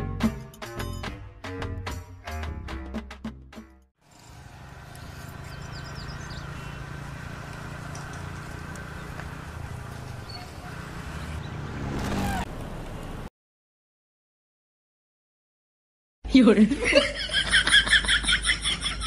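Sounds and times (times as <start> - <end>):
small motorcycle engine passing: 4.0 - 13.3.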